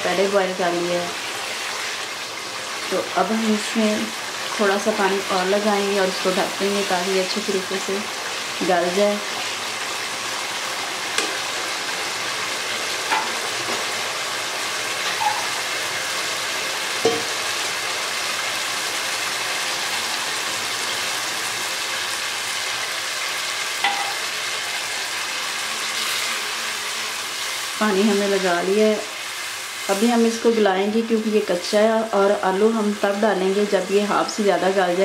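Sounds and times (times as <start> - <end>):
food sizzling in a wok: 0.0 - 35.0
spatula tapping pan: 13.1 - 13.8, 17.0 - 17.4, 23.8 - 24.2.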